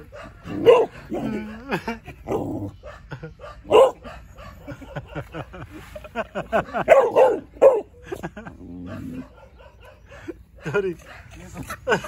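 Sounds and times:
puppy barking: 0:00.0 - 0:01.4, 0:02.3 - 0:05.3, 0:06.6 - 0:08.0, 0:08.8 - 0:11.9.

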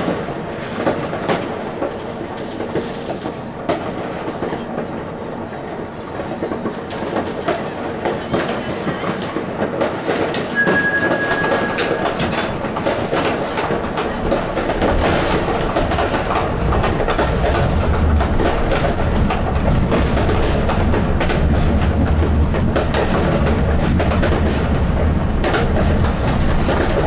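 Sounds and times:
low running rumble: 0:15.3 - 0:26.7.

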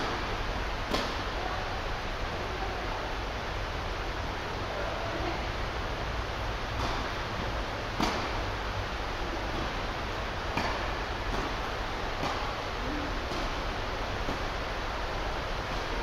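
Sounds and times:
tennis ball hits and bounces: 0:00.9 - 0:01.2, 0:06.7 - 0:07.3, 0:08.0 - 0:08.5, 0:10.5 - 0:12.6, 0:13.2 - 0:14.5.

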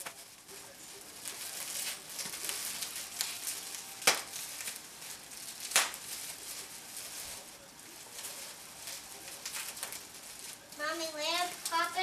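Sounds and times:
bubble wrap crinkling: 0:00.0 - 0:12.0
bubble wrap pops: 0:01.2 - 0:07.4, 0:08.2 - 0:10.6.

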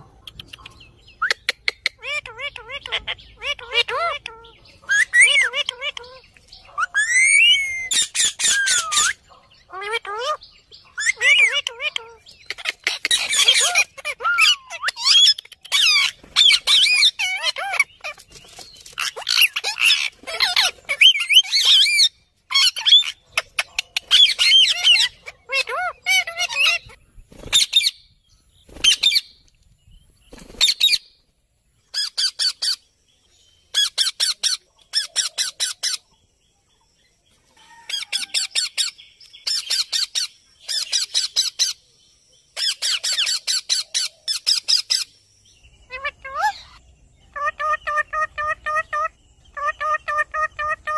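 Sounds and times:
harsh bird chattering: 0:00.0 - 0:28.0, 0:45.9 - 0:50.9
parakeets squawking: 0:00.0 - 0:28.0, 0:42.6 - 0:45.1, 0:45.9 - 0:50.9.

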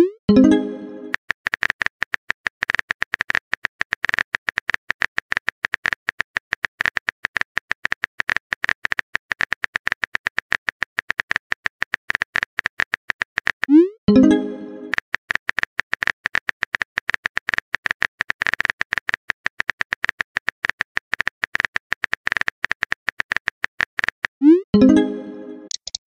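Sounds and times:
keyboard typing clicks: 0:24.8 - 0:26.0.

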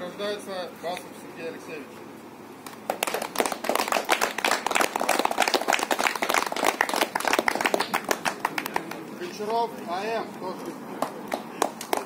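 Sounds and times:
people clapping: 0:02.6 - 0:09.6, 0:10.6 - 0:12.0.

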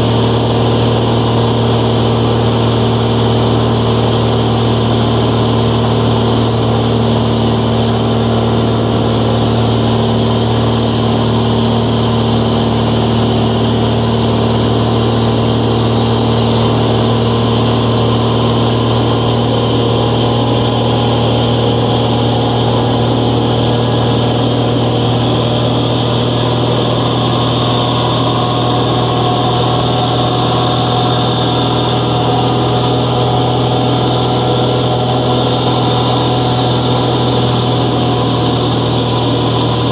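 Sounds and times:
aircraft engine hum: 0:00.0 - 0:39.9
rushing air noise: 0:15.5 - 0:39.8.

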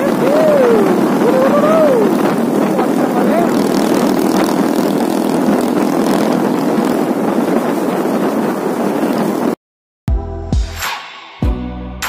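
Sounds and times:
motorcycle engine at speed: 0:00.0 - 0:09.6
wind and road noise: 0:00.0 - 0:09.6.

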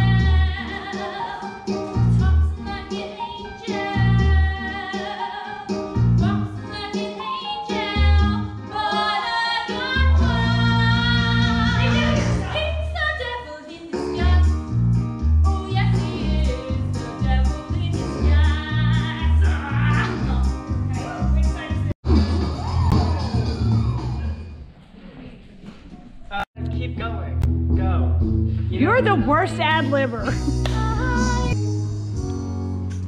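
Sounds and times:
upbeat song with singing: 0:00.0 - 0:14.8, 0:15.4 - 0:22.0, 0:28.9 - 0:31.6.

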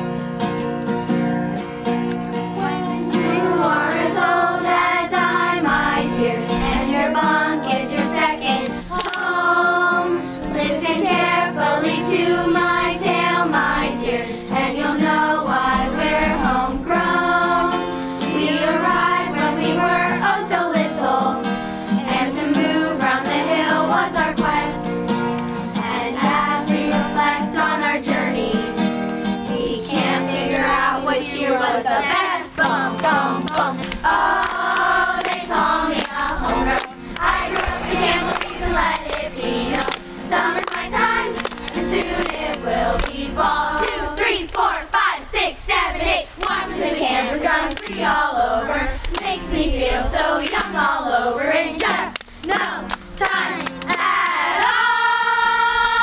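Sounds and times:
group of girls singing: 0:02.3 - 0:56.0
hand clapping: 0:08.4 - 0:09.4, 0:25.2 - 0:25.6, 0:30.4 - 0:30.8, 0:32.1 - 0:43.2, 0:46.4 - 0:46.6, 0:47.6 - 0:48.1, 0:49.0 - 0:49.4, 0:50.4 - 0:50.8, 0:51.8 - 0:54.7.

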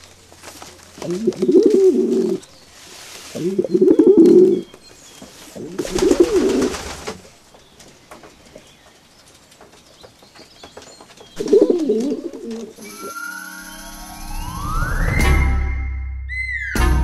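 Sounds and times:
pigeons cooing: 0:01.0 - 0:02.6, 0:03.2 - 0:04.8, 0:05.4 - 0:07.4, 0:11.4 - 0:13.1
music with rising glide: 0:12.8 - 0:17.0.

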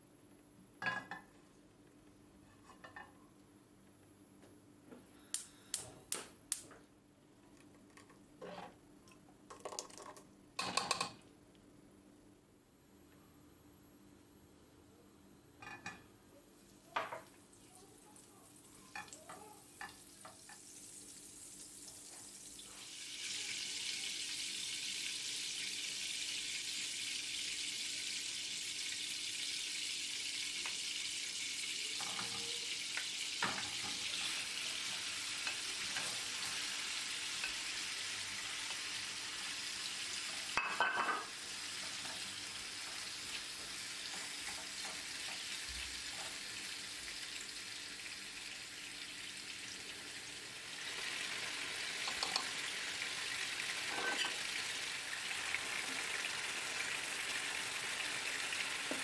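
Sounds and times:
butter sizzling in frying pan: 0:18.6 - 0:59.0.

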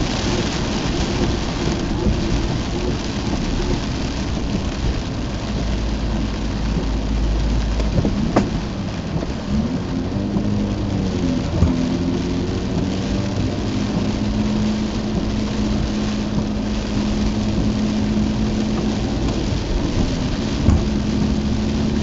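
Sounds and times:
car engine: 0:00.0 - 0:22.0
heavy rain on car roof: 0:00.0 - 0:22.0.

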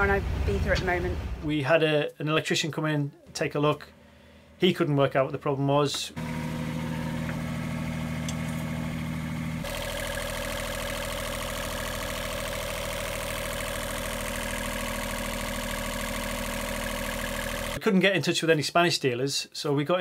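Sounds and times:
diesel generator running: 0:06.2 - 0:17.8.

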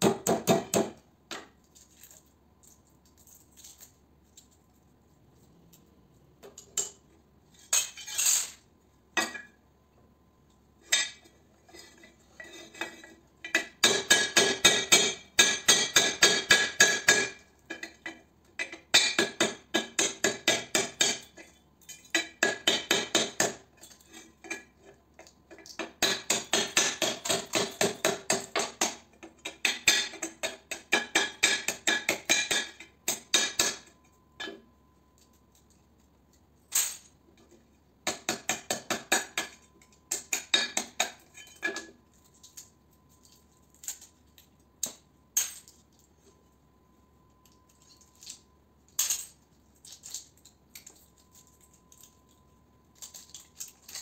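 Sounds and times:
metallic clinks of parts handled: 0:01.6 - 0:04.7, 0:47.4 - 0:54.0
hammer striking metal: 0:13.6 - 0:17.4, 0:29.7 - 0:33.9.

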